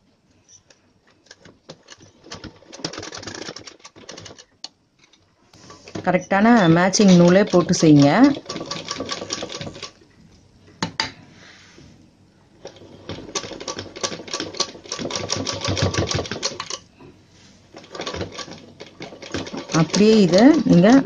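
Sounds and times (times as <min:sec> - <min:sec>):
sewing machine stitching: 0:01.2 - 0:04.6, 0:05.9 - 0:10.0, 0:12.6 - 0:16.8, 0:17.7 - 0:21.0.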